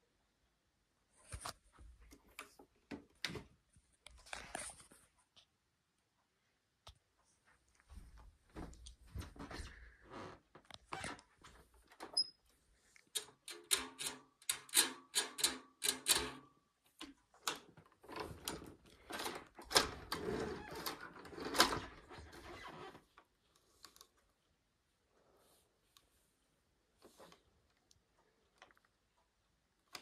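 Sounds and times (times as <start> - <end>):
vacuum cleaner clicks and rattles: 17.4 - 22.4.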